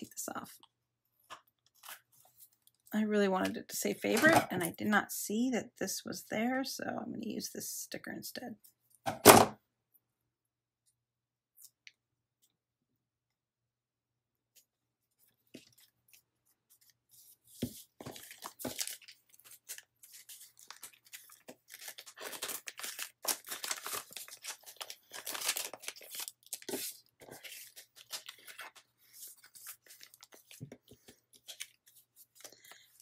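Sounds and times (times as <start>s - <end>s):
plastic sleeve rustling: 15.3s - 33.0s.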